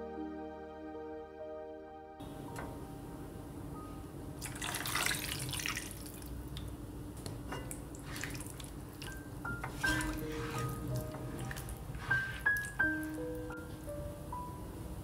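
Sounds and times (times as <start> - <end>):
liquid splashing: 4.4 - 6.5, 7.6 - 13.6.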